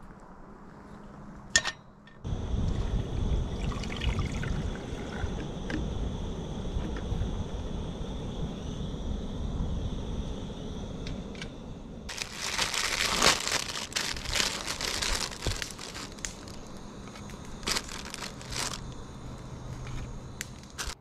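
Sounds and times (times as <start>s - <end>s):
crinkling and rustling: 12.1s - 21.0s.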